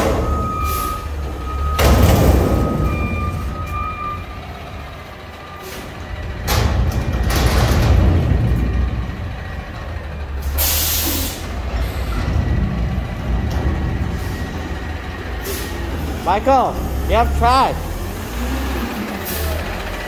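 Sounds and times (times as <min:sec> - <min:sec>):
garbage truck engine rumbling: 0:00.0 - 0:20.0
air brake hiss: 0:10.5 - 0:11.5, 0:15.4 - 0:15.8.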